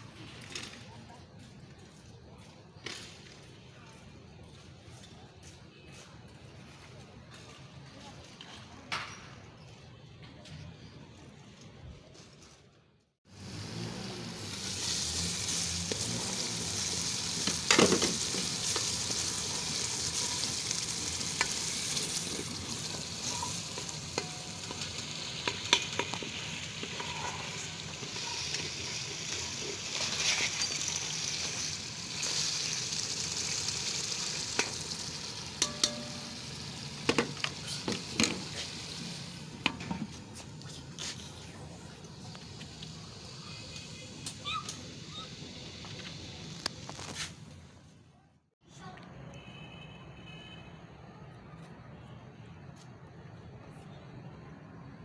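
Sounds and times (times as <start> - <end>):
food sizzling in oil: 13.3 - 39.6, 42.2 - 46.6.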